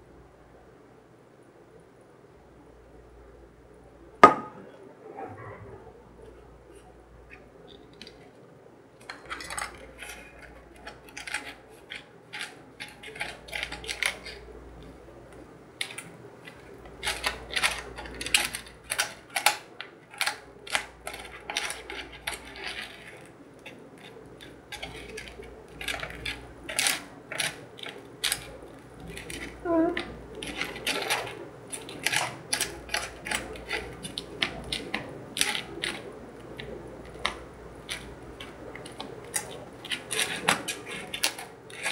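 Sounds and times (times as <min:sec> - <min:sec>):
spoon scraping plastic tray: 0:37.1 - 0:41.9.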